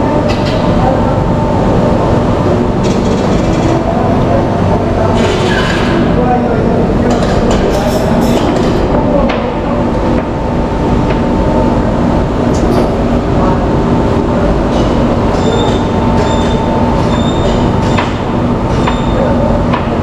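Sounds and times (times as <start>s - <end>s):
mechanical rumble with hum: 0.0s - 20.0s.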